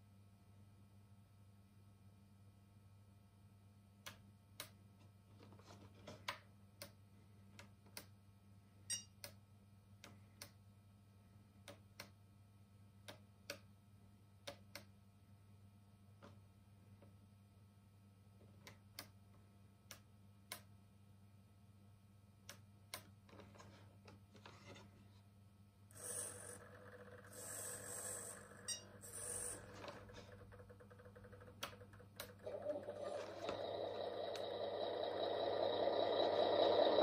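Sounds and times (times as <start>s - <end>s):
simulated diesel engine from speaker: 32.4s - 37.0s.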